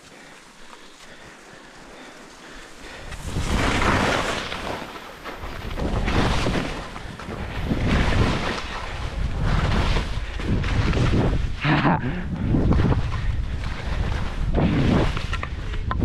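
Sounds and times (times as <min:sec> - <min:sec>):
skis scraping through snow: 0:00.0 - 0:11.7, 0:12.3 - 0:16.0
wind on microphone: 0:05.4 - 0:16.0.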